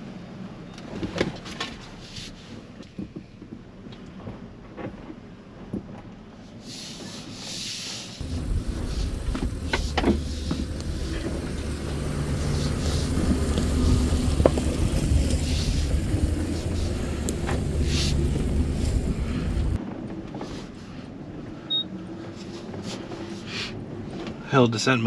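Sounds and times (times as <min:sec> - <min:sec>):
truck rumbling: 0:08.2 - 0:19.8.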